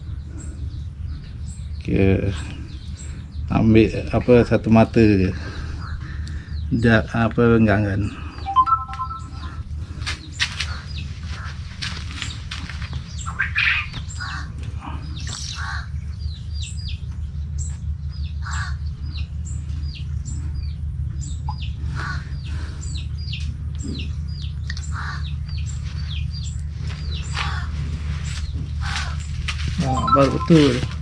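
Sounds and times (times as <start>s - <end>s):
low hum: 8.0s - 31.0s
small bird chirping: 8.4s - 9.6s, 12.2s - 31.0s.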